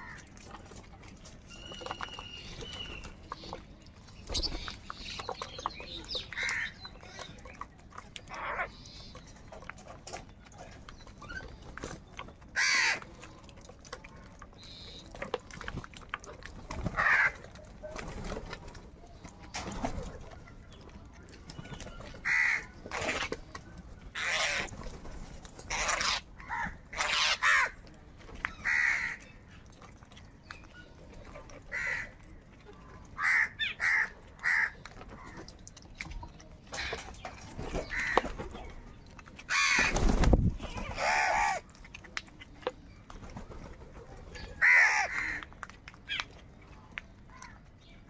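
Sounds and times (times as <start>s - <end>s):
crows cawing: 12.6s - 13.0s, 22.2s - 22.7s, 25.7s - 27.8s, 28.6s - 29.2s, 31.7s - 32.1s, 33.2s - 35.3s, 37.9s - 38.2s, 39.5s - 40.0s, 44.6s - 45.5s.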